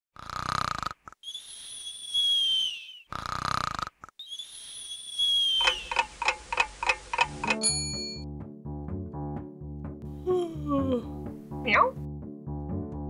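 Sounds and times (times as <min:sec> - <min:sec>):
cartoon snoring and whistle: 0:00.2 - 0:06.0
regular ticks: 0:05.6 - 0:07.7.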